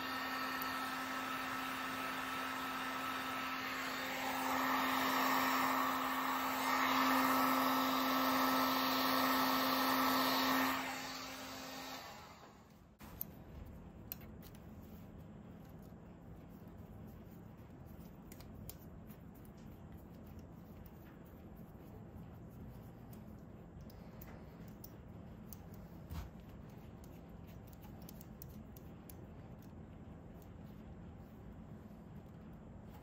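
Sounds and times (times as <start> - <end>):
heat gun running: 0.0 - 12.9.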